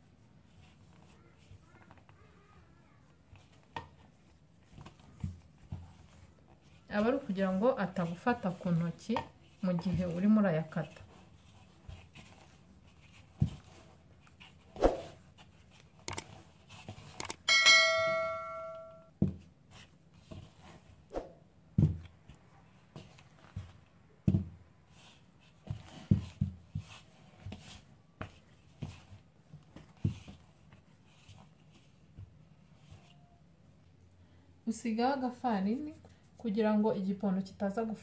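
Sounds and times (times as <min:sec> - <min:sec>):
sharp clicks: 0:16.1 - 0:16.3, 0:17.2 - 0:17.5
bell-like ding: 0:17.5 - 0:19.1.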